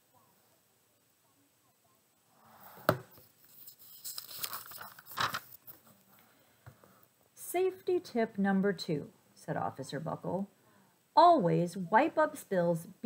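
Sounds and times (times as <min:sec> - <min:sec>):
book pages rustling: 0:03.1 - 0:06.1.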